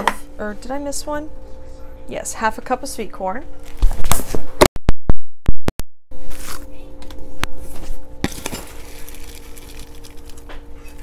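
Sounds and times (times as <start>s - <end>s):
steady low hum: 6.1s - 11.0s.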